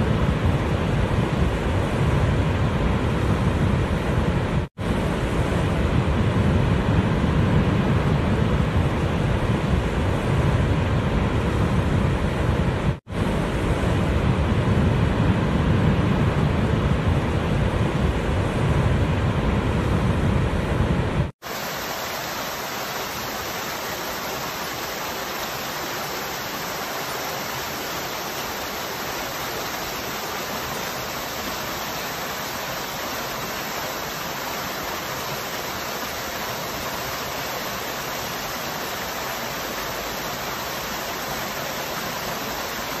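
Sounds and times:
large waterfall rumbling: 0:00.0 - 0:43.0
small waterfall splashing: 0:21.4 - 0:43.0.

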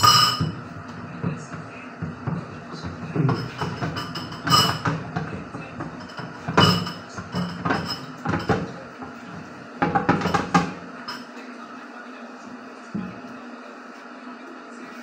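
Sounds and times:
pan clattering in metal sink: 0:00.0 - 0:00.6, 0:02.2 - 0:09.2, 0:09.8 - 0:11.2.

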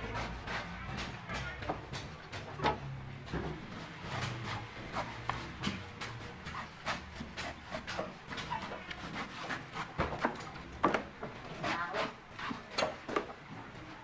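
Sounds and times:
knife cutting coconut husk: 0:00.0 - 0:02.2, 0:03.8 - 0:10.4.

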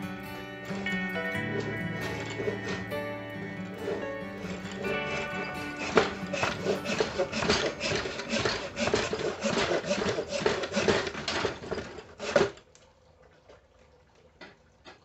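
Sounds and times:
sandpaper rubbing on metal: 0:03.8 - 0:11.0.

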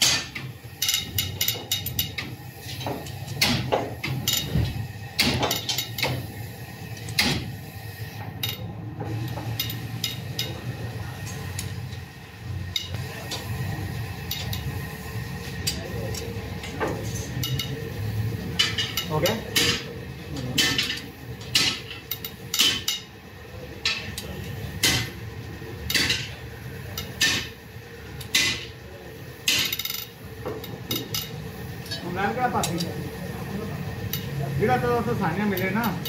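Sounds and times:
steady low hum: 0:00.0 - 0:36.0
wrench turning bolts: 0:00.8 - 0:06.3, 0:08.4 - 0:10.7, 0:14.3 - 0:14.7, 0:15.6 - 0:17.8, 0:20.4 - 0:23.1, 0:29.5 - 0:30.2, 0:30.9 - 0:32.0.

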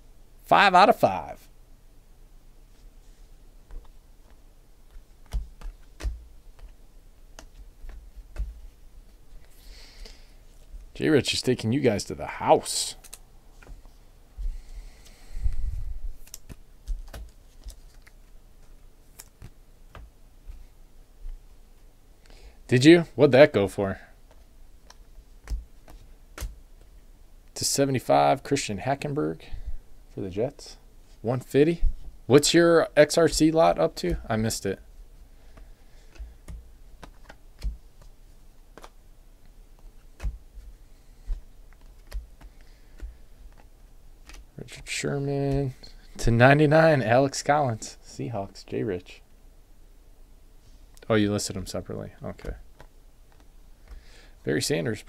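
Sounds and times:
trading cards flipped by hand: 0:03.7 - 0:08.8, 0:13.0 - 0:13.9, 0:16.2 - 0:20.7, 0:24.3 - 0:26.9, 0:35.5 - 0:39.0, 0:39.7 - 0:44.8, 0:52.4 - 0:54.1.

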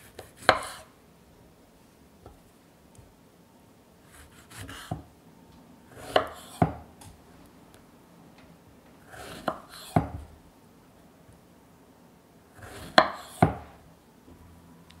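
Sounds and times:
knife slicing strawberries: 0:00.0 - 0:00.9, 0:04.1 - 0:05.1, 0:05.9 - 0:06.9, 0:09.1 - 0:10.3, 0:12.6 - 0:13.7.

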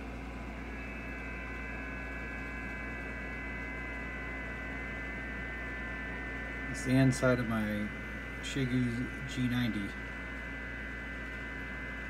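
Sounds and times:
data tones: 0:00.0 - 0:08.2
low hum: 0:00.0 - 0:12.0.

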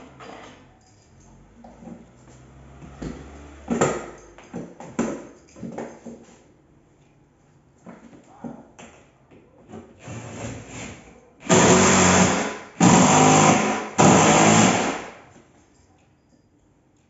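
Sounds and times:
power drill running: 0:11.4 - 0:15.2.

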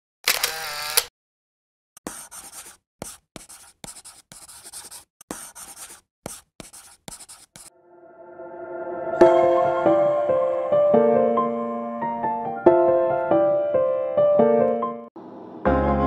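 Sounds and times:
pen scratching on paper: 0:02.0 - 0:07.7
soft music: 0:07.7 - 0:15.1, 0:15.7 - 0:16.0.

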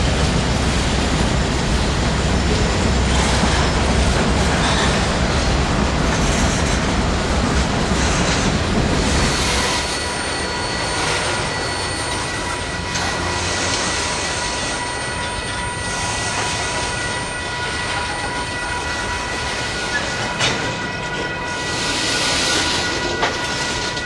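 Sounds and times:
freight cars rumbling on rails: 0:00.0 - 0:24.0
wheel squeal: 0:09.1 - 0:16.9.

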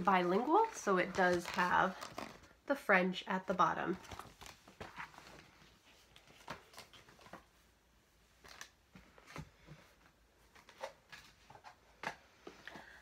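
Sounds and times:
clicks and rustles of objects handled: 0:00.0 - 0:02.6, 0:03.9 - 0:07.6.

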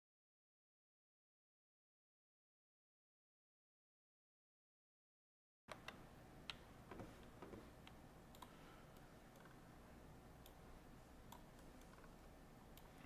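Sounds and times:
computer mouse clicks: 0:05.7 - 0:09.6, 0:10.4 - 0:10.6, 0:11.2 - 0:13.0.

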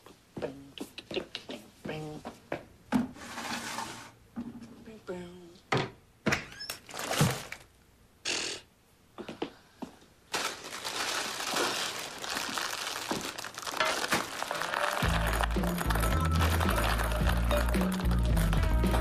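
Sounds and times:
popcorn bag crinkling: 0:06.8 - 0:07.6, 0:10.3 - 0:19.0
popcorn tumbling into plastic bowl: 0:10.4 - 0:19.0
music: 0:14.5 - 0:19.0.

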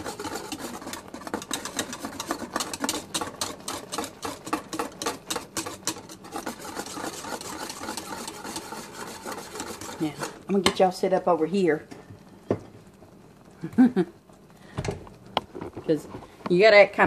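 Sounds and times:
whisk scraping metal saucepan: 0:00.0 - 0:10.9
thick mixture bubbling: 0:00.0 - 0:16.4.

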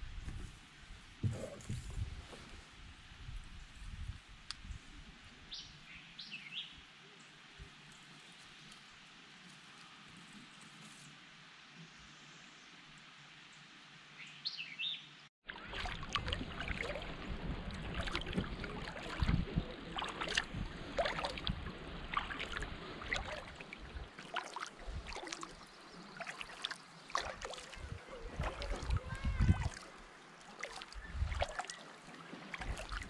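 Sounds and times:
paddle splashing in water: 0:15.4 - 0:33.0.

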